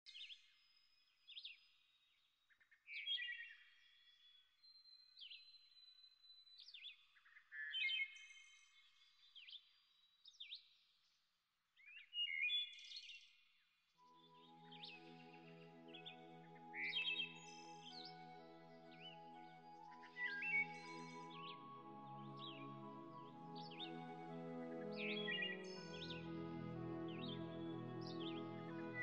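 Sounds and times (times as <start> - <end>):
birds chirping and whistling: 14.3 - 29.0.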